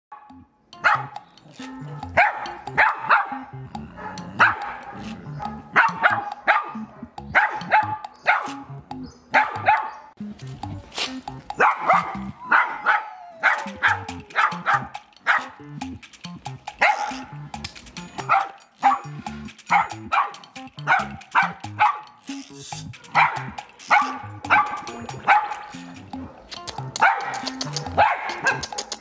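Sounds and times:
background music: 0.1s - 29.0s
small dog barking: 0.8s - 3.4s, 5.7s - 8.6s, 9.3s - 10.0s, 11.6s - 15.5s, 16.8s - 17.2s, 18.2s - 19.1s, 19.7s - 22.1s, 23.0s - 25.6s, 26.7s - 28.7s.

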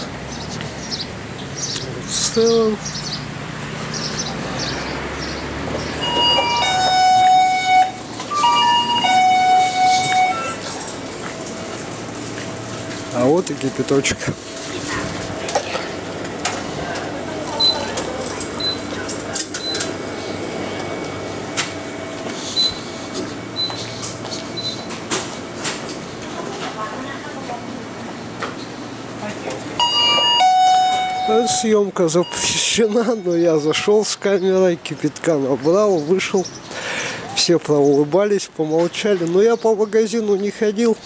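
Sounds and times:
electronic door chime: 6.0s - 10.7s, 18.6s - 25.0s, 29.8s - 34.1s
steady hum: 6.8s - 34.1s.

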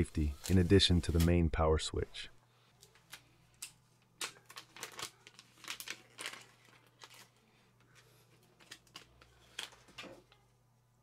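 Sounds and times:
plastic bag crinkling: 2.9s - 7.5s, 8.4s - 10.4s.

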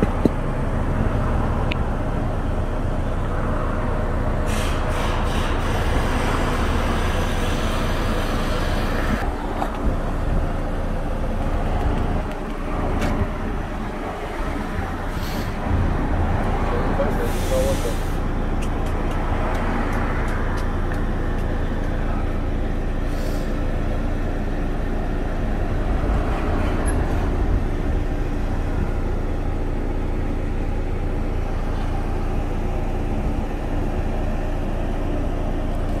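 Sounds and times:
low mechanical drone: 0.0s - 36.0s.

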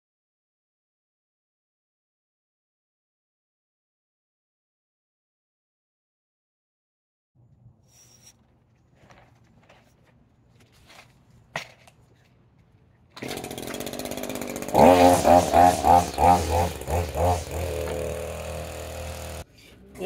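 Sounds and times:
string trimmer engine revving: 13.1s - 20.0s.

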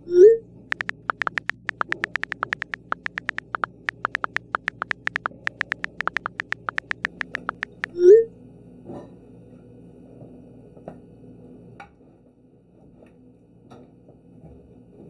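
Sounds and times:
smartphone keyboard clicks: 0.7s - 8.0s.

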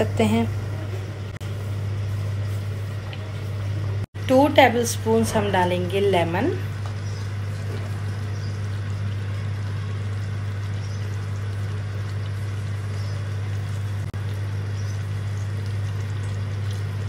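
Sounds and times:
pot simmering hiss: 0.0s - 17.0s.

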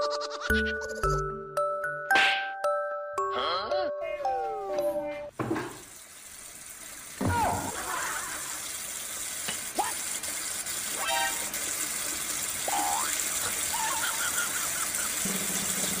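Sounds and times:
tap water pouring: 5.4s - 16.0s.

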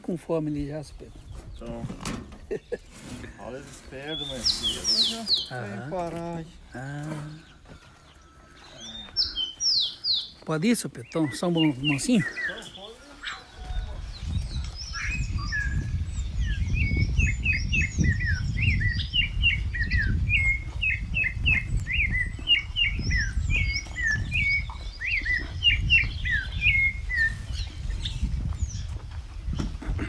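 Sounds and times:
songbird chirping: 0.0s - 30.0s
footsteps on dirt: 3.5s - 16.0s, 20.5s - 30.0s.

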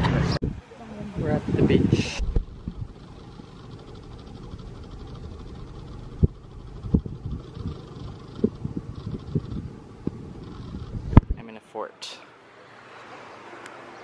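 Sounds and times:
wind buffeting microphone: 0.3s - 11.4s
sharp thumps: 2.2s - 11.4s.

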